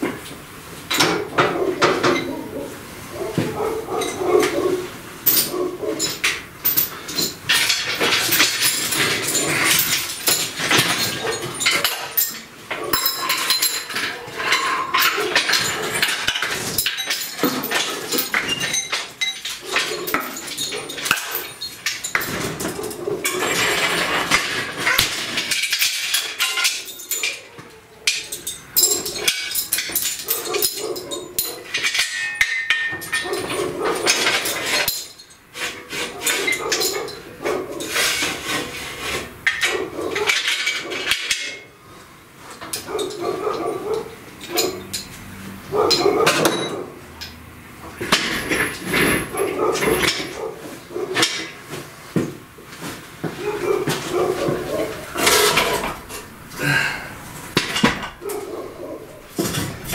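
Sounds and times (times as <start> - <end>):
chain rattling: 5.2 - 38.7, 42.6 - 46.8, 57.5 - 59.9
steel parts clanking: 5.2 - 41.7, 44.3 - 50.5, 53.9 - 59.9.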